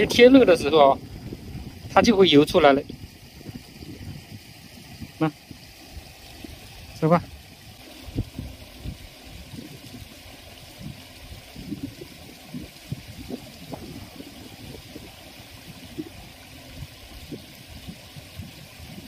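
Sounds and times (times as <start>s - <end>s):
water trickling and gurgling: 0.0s - 19.0s.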